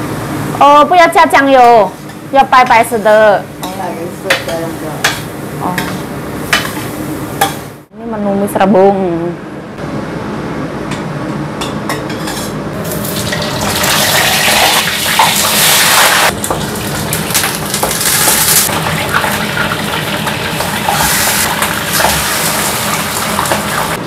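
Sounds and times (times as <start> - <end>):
fish sizzling in oil: 12.9 - 24.0.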